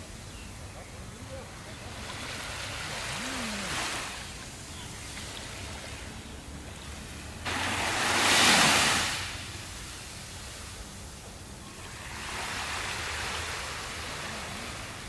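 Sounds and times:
sea waves washing on beach: 0.0s - 15.0s
wave breaking: 2.0s - 4.4s, 7.4s - 9.5s.

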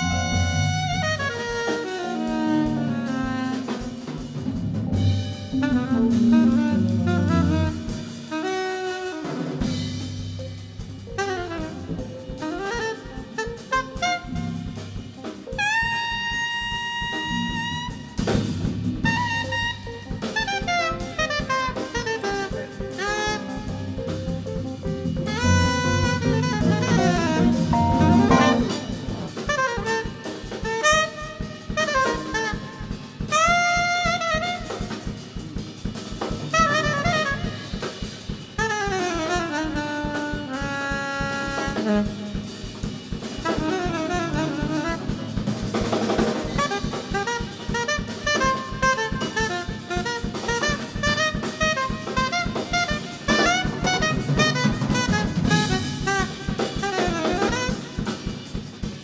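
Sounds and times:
electric bass: 0.0s - 1.3s, 4.2s - 8.2s, 23.4s - 29.5s
soprano saxophone melody: 0.0s - 10.0s, 10.8s - 18.4s, 19.0s - 58.6s
drum kit with cymbals: 0.0s - 59.0s
keyboards: 19.6s - 29.6s.

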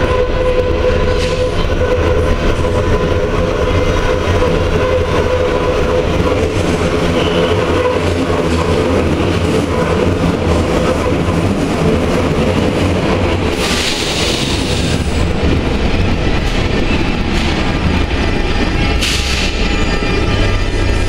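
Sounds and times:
train rumbling on rails: 0.0s - 21.0s.

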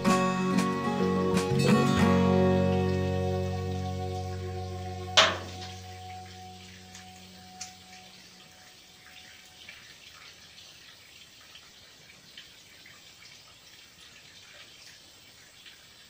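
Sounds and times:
music note: 0.0s - 8.7s.

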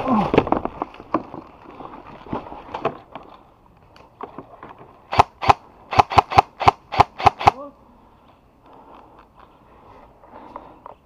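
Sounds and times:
airsoft gun shots: 5.1s - 7.6s.

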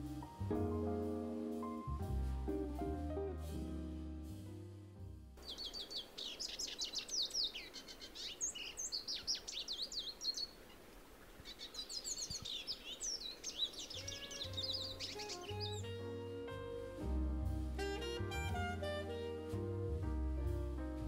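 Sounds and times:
background music: 0.0s - 5.4s, 13.9s - 21.0s
finch twittering song: 5.4s - 10.8s, 11.4s - 16.8s.

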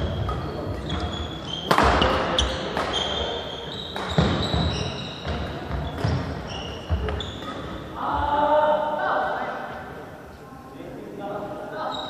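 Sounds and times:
racket hitting shuttlecock: 0.0s - 3.2s
sneakers squeaking: 0.0s - 8.4s, 11.8s - 12.0s.

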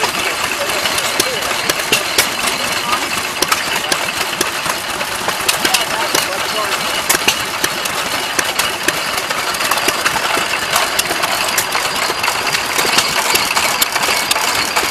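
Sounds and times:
stationary gas engines clattering: 0.0s - 14.9s.

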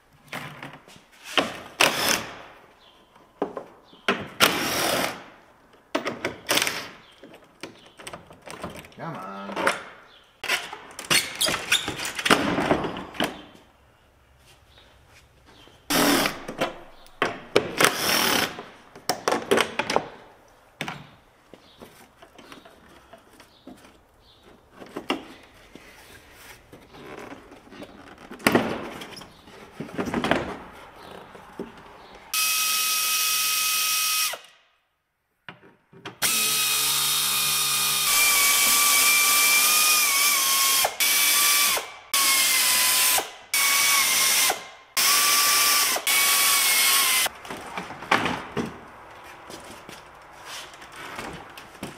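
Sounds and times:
power drill whining: 32.4s - 34.5s, 36.2s - 47.3s.

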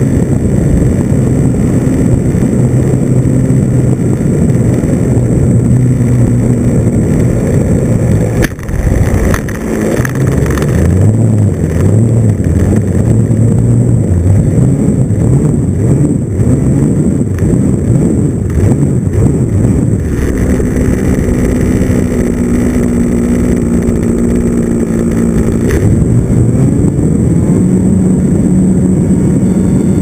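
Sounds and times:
wind rush: 0.0s - 30.0s
model plane engine running: 29.4s - 30.0s.

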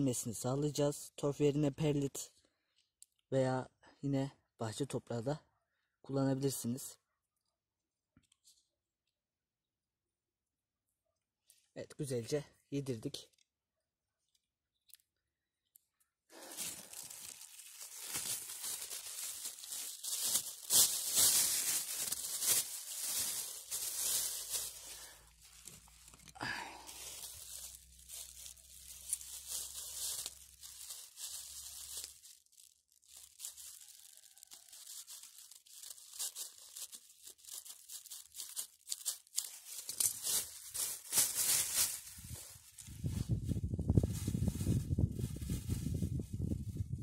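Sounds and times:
plastic bag crinkling: 16.3s - 46.8s.

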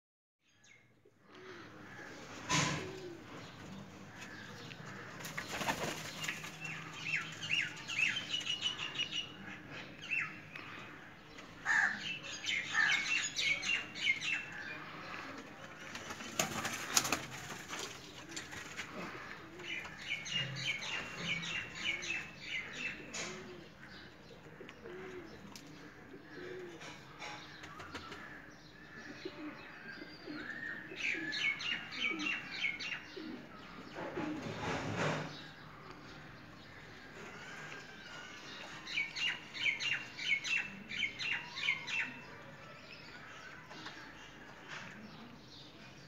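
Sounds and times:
soft low pigeon coos: 1.1s - 5.0s, 17.7s - 28.1s, 29.0s - 35.3s
pigeon wings flapping: 5.2s - 6.6s, 16.0s - 18.0s.

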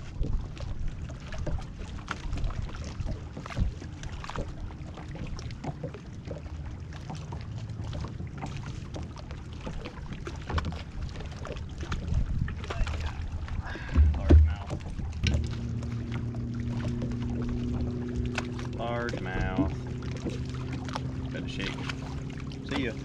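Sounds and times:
waves slapping against boat hull: 0.0s - 23.0s
low wind rumble: 10.8s - 23.0s.

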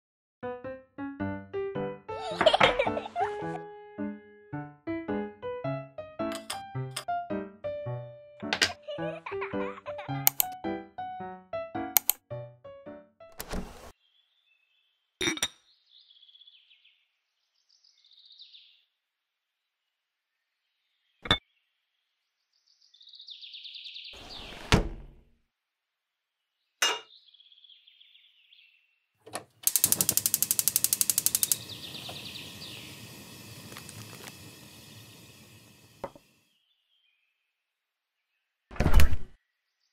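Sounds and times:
gas stove igniter clicking: 10.3s - 10.6s, 29.3s - 36.2s
small drawer sliding with knocks: 13.4s - 13.9s
gas burner hissing: 29.6s - 36.4s.

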